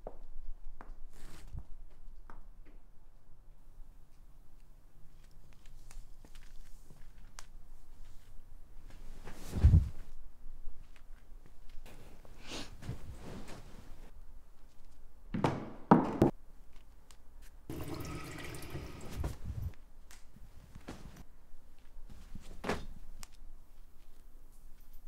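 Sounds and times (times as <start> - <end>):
tap running into sink: 17.7 - 19.4.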